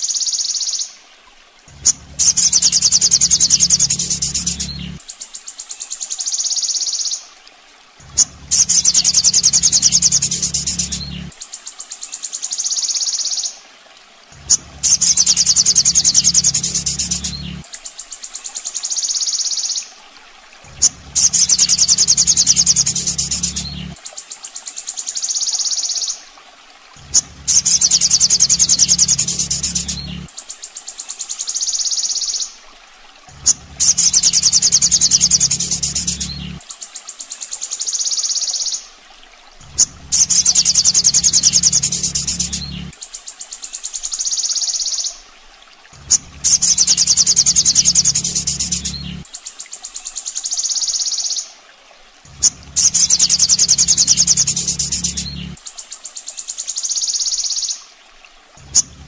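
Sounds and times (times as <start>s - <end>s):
low hum: 1.7s - 5.0s, 8.0s - 11.3s, 14.3s - 17.6s, 20.7s - 24.0s, 27.0s - 30.3s, 33.3s - 36.6s, 39.6s - 42.9s, 46.0s - 49.2s, 52.3s - 55.6s, 58.6s - 59.0s
high-pitched pulsed bird trill: 1.8s - 5.0s, 8.2s - 11.3s, 14.5s - 17.6s, 20.8s - 24.0s, 27.1s - 30.3s, 33.4s - 36.6s, 39.8s - 42.9s, 46.1s - 49.2s, 52.4s - 55.6s.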